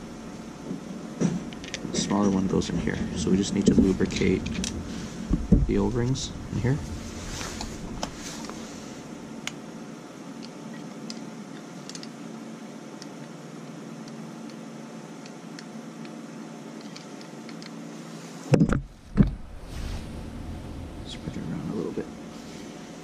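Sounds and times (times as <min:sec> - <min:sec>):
steady low hum: 0:00.0 - 0:23.0
loud dull thumps: 0:05.2 - 0:07.1, 0:18.6 - 0:22.2.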